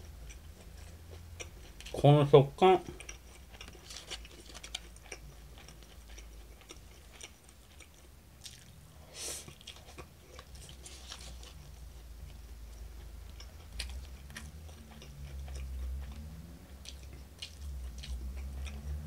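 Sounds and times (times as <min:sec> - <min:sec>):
chewing food: 0:00.0 - 0:02.0, 0:02.8 - 0:19.0.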